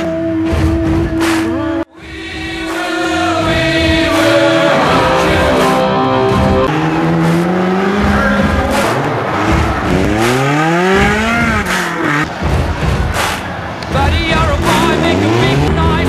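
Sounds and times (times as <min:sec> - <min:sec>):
choir-like singing: 0:01.8 - 0:09.4
sustained chords: 0:02.0 - 0:12.2.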